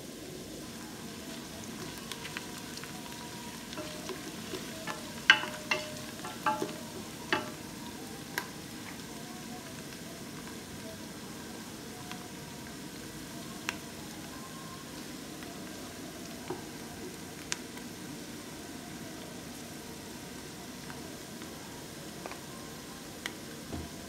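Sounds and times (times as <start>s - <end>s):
onions sizzling in hot oil: 0.0s - 24.0s
wooden spatula stirring: 1.3s - 7.8s
spatula knocking on pot: 3.8s - 7.6s.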